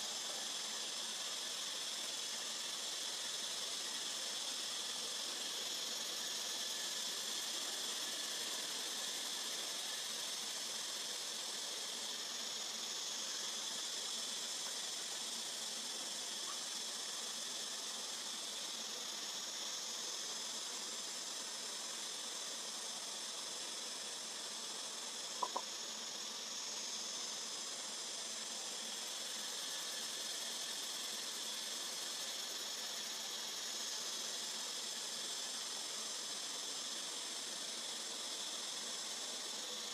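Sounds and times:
insect chorus drone: 0:00.0 - 0:39.9.

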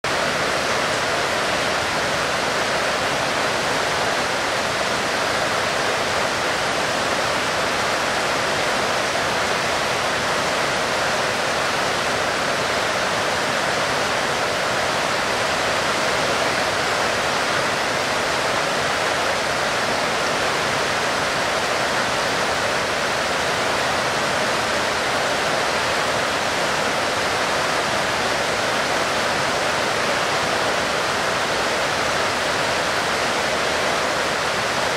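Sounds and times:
heavy rain: 0:00.0 - 0:34.9.

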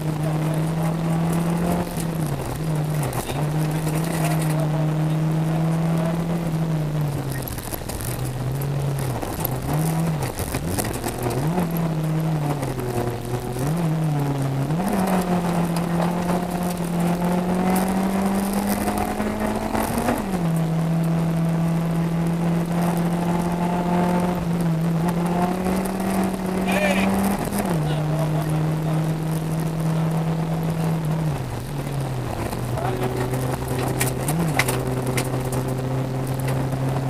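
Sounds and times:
rally car engine revving: 0:00.0 - 0:37.0
stones ticking against car: 0:06.8 - 0:21.2, 0:30.8 - 0:37.0.

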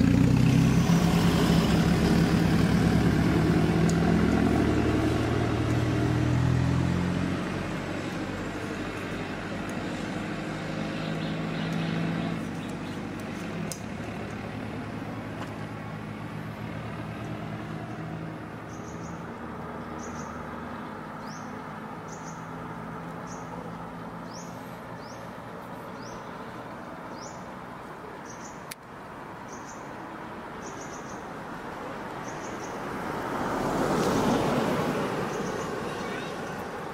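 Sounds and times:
traffic passing: 0:00.0 - 0:36.9
bird chirping: 0:10.9 - 0:13.2, 0:18.6 - 0:20.4, 0:21.2 - 0:22.6, 0:28.2 - 0:28.7, 0:29.5 - 0:29.9, 0:30.6 - 0:31.3, 0:32.2 - 0:32.8, 0:35.3 - 0:36.8.

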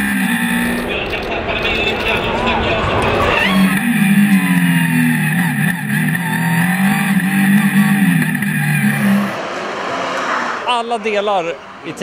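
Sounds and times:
race car engine revving: 0:00.0 - 0:01.2, 0:02.0 - 0:12.0.

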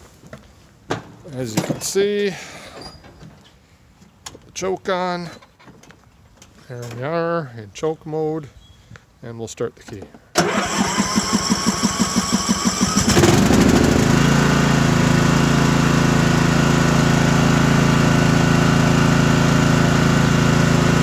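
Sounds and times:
electric starter cranking engine: 0:10.4 - 0:15.4
lawn tractor engine running: 0:10.4 - 0:21.0.

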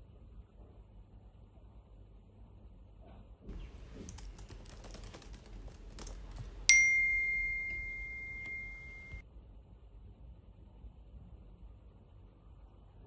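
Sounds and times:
laptop keyboard typing: 0:03.5 - 0:09.2
phone notification chime: 0:06.7 - 0:09.2.

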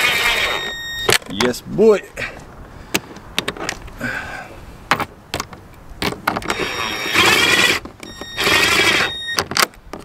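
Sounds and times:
power drill motor whine: 0:06.5 - 0:09.4.

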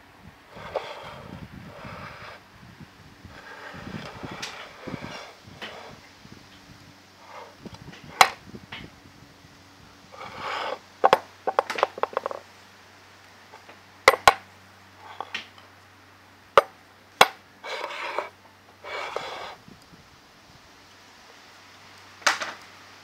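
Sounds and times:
vise jaw scraping: 0:00.5 - 0:02.4, 0:03.3 - 0:06.1, 0:07.2 - 0:08.4, 0:10.1 - 0:12.4, 0:15.0 - 0:15.4, 0:16.6 - 0:19.6.

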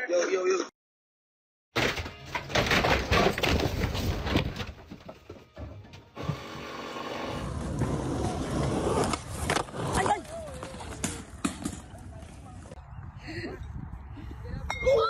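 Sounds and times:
wall boards knocking and cracking: 0:01.8 - 0:05.8
skateboard wheels rolling on concrete: 0:06.1 - 0:12.8.

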